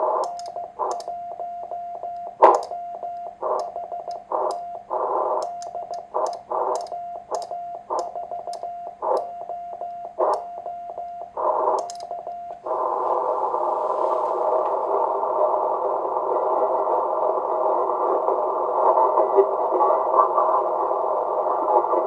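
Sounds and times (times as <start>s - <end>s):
radio band noise hiss: 0.0s - 1.0s, 2.3s - 2.7s, 3.4s - 5.4s, 6.1s - 6.8s, 11.3s - 11.8s, 12.6s - 22.0s
morse code sidetone: 0.2s - 12.6s.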